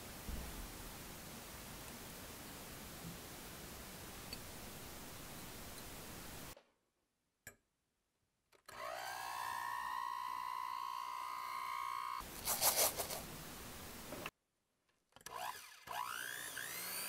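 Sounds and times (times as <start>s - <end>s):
electric hand mixer whirring: 8.7s - 12.2s, 15.3s - 17.0s.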